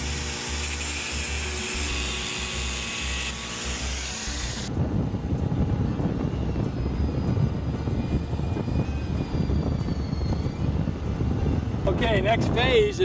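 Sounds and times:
angle grinder cutting steel: 0:00.0 - 0:04.7
low rumble: 0:04.3 - 0:12.9.

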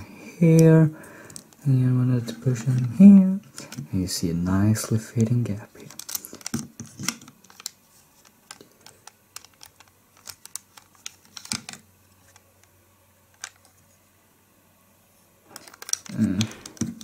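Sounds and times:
plastic bricks clicking: 0:05.2 - 0:12.4, 0:15.5 - 0:17.0.

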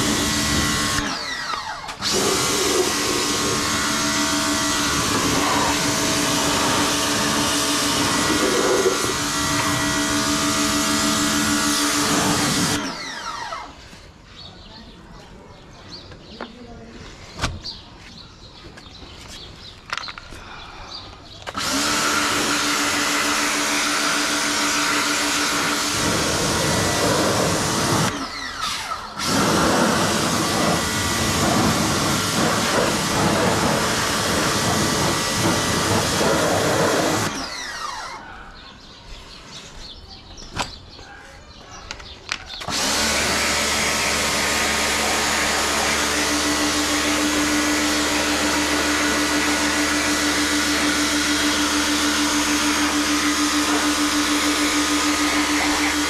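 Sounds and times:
pressure washer motor hum: 0:00.0 - 0:14.0, 0:21.5 - 0:38.2, 0:42.6 - 0:56.0.

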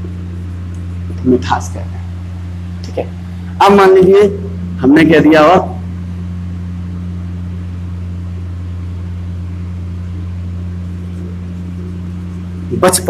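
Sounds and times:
buzzy electrical hum: 0:00.0 - 0:13.0.

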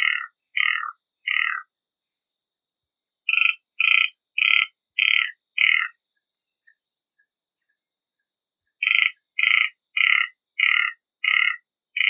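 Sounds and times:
bird harsh rasping calls: 0:08.8 - 0:12.0.

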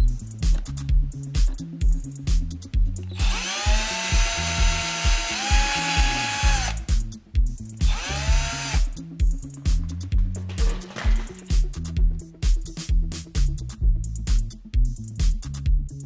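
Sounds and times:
background music with steady beat: 0:00.0 - 0:16.0
cordless drill whining: 0:03.1 - 0:06.9, 0:07.9 - 0:09.0.

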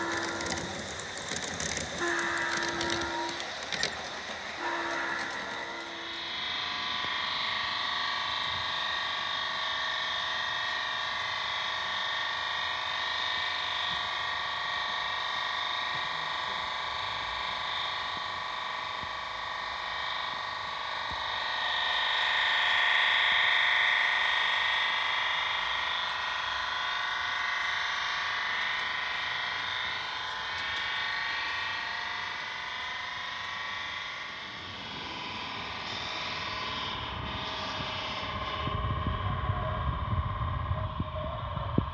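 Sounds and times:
model train high-pitched whine: 0:00.0 - 0:41.9.

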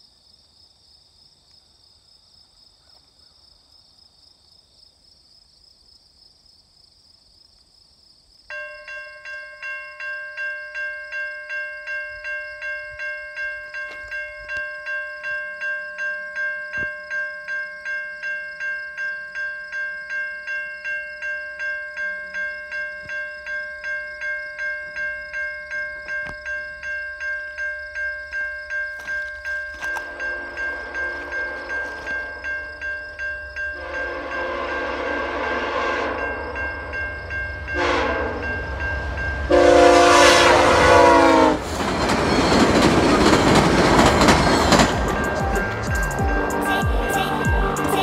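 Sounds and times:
crickets chirping: 0:00.0 - 0:48.0
level crossing warning bell: 0:08.5 - 0:48.0.

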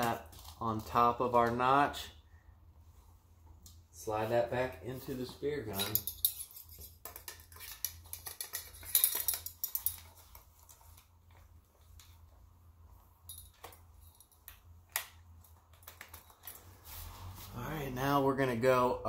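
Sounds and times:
metallic clicks and rattles: 0:05.7 - 0:10.9.

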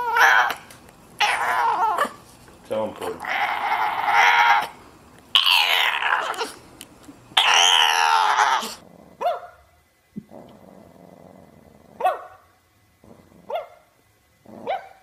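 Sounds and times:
puppy whining howls: 0:00.0 - 0:00.6, 0:01.2 - 0:02.2, 0:03.2 - 0:04.7, 0:05.4 - 0:06.6, 0:07.4 - 0:08.8
puppy whimper: 0:01.2 - 0:02.2, 0:07.4 - 0:08.8.

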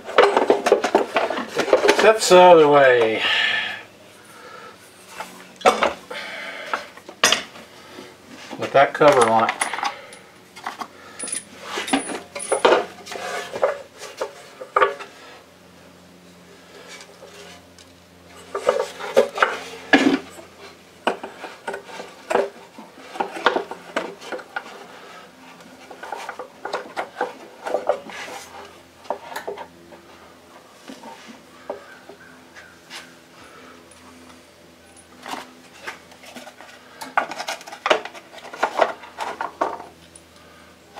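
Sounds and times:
faint steady hum: 0:00.0 - 0:40.9
metal tools clinking: 0:08.9 - 0:10.2, 0:11.1 - 0:13.8.

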